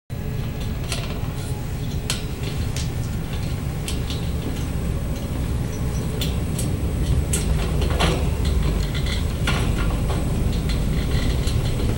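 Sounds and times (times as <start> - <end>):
camera dolly wheels rolling: 0.4 - 11.9.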